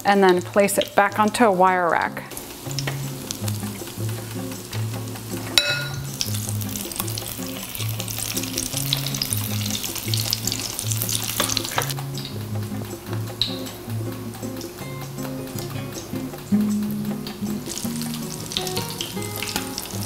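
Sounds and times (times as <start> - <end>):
oil sizzling and crackling: 0.0 - 20.0
background music with bass line: 2.1 - 20.0
ringing clink: 5.6 - 6.0.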